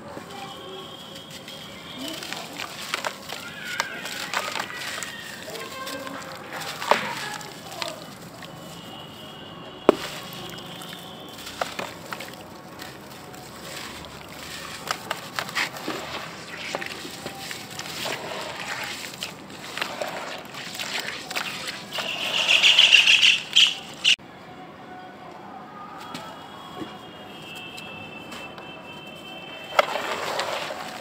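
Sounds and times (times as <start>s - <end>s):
chalky block crumbling in water: 9.9s - 21.9s.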